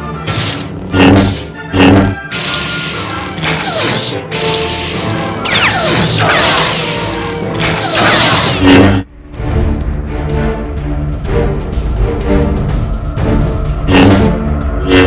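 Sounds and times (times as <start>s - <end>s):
music: 0.0s - 15.0s
lightsaber clashes and swooshes: 0.3s - 9.1s, 13.9s - 14.3s.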